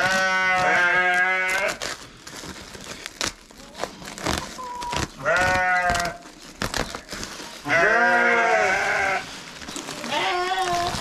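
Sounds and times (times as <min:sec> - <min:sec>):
sheep bleating: 0:00.0 - 0:01.8, 0:05.2 - 0:06.2, 0:07.6 - 0:09.2, 0:10.0 - 0:11.0.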